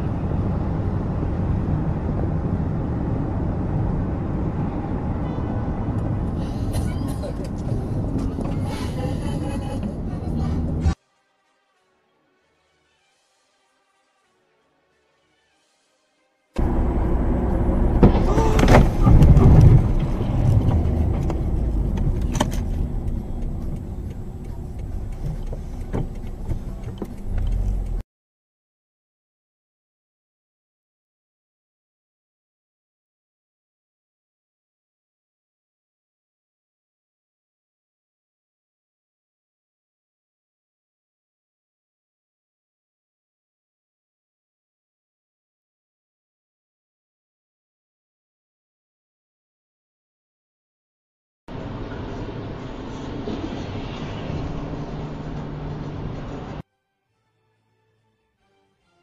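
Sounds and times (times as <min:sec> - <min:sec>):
car driving road and engine noise: 0:00.0 - 0:11.0, 0:16.6 - 0:28.0, 0:51.5 - 0:56.6.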